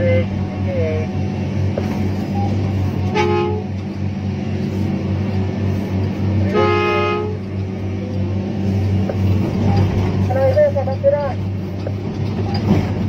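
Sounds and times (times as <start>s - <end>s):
diesel engine running: 0.0s - 13.0s
two-tone horn toots: 2.3s - 3.8s, 6.5s - 7.5s.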